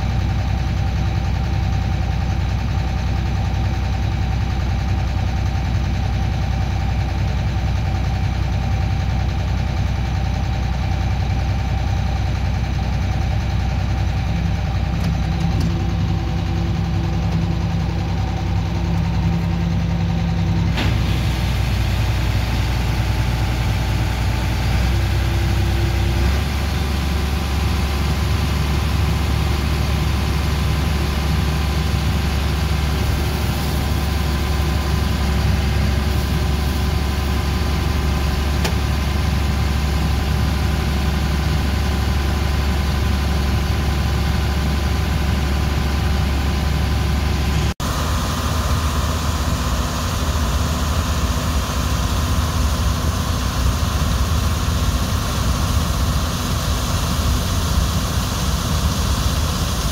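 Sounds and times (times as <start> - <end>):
tractor diesel engine running: 0.0 - 59.9
unloading auger running: 12.0 - 47.7.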